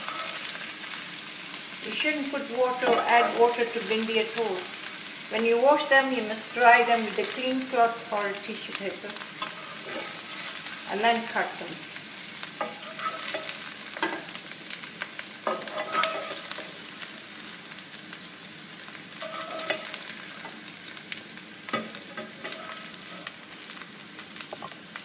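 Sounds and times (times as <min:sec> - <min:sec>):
spatula scraping pan: 0:00.0 - 0:00.7, 0:02.7 - 0:03.6, 0:09.2 - 0:10.9, 0:12.6 - 0:14.3, 0:15.4 - 0:16.7, 0:19.2 - 0:20.6, 0:21.7 - 0:23.4
okra sizzling in frying pan: 0:00.0 - 0:25.0.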